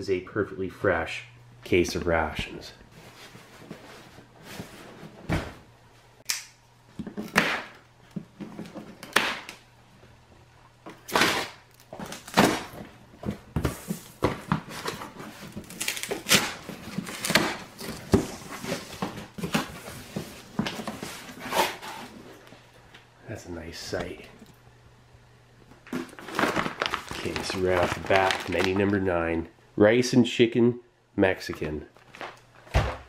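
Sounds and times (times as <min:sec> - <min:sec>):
plastic strapping pulled off: 0:25.8 - 0:29.0.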